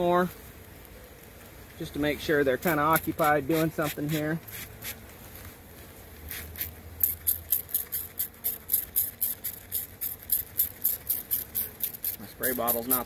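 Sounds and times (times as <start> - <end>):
spray bottle hissing: 6.3 - 13.0.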